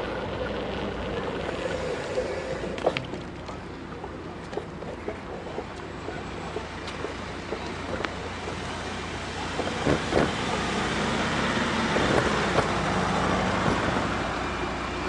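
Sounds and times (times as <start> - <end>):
road traffic: 0.0 - 15.0
car passing close: 6.0 - 15.0.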